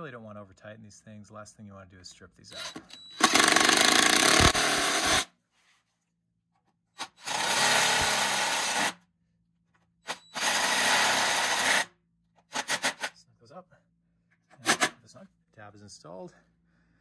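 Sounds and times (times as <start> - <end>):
cordless drill driving screws: 2.6 - 5.3, 7.0 - 9.0, 10.1 - 11.9, 12.5 - 13.1.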